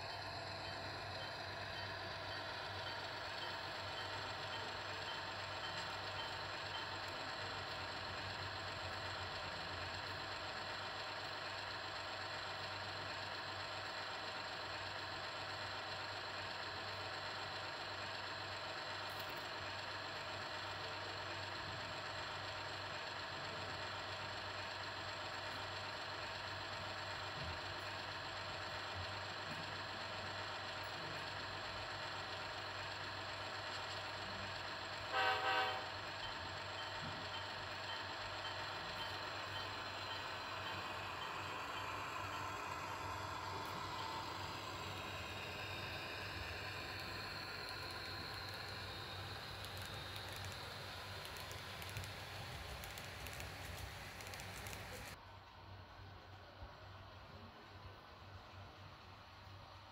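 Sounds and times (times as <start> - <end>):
model diesel engine sound: 0.0 - 59.9
short horn toot: 35.1 - 35.9.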